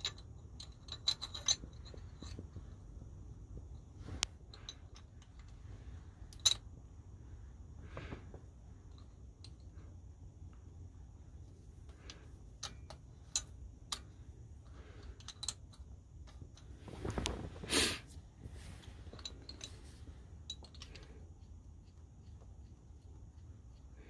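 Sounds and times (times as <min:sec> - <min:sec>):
metal clamp and bolt clicking: 0:00.0 - 0:02.6, 0:11.9 - 0:16.7, 0:19.1 - 0:21.2.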